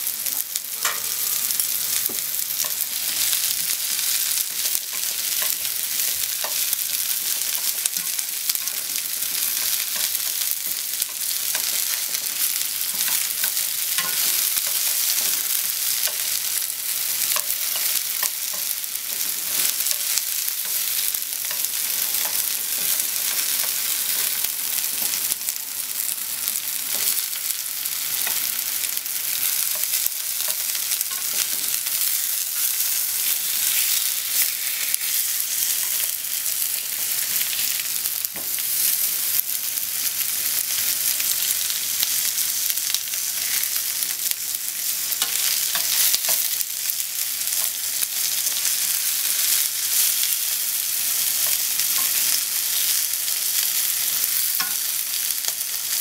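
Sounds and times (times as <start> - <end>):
meat and onion sizzling in pan: 0.0 - 56.0
chopsticks tapping and scraping: 0.8 - 1.2, 1.9 - 3.8, 4.4 - 16.4, 17.2 - 25.4, 29.5 - 32.8, 54.6 - 55.6.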